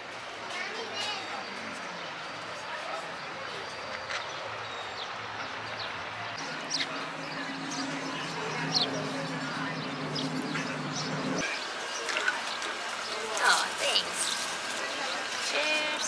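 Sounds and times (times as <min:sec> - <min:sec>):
city background noise: 0:00.0 - 0:16.0
birds chirping: 0:01.1 - 0:16.0
steady low hum: 0:06.4 - 0:11.4.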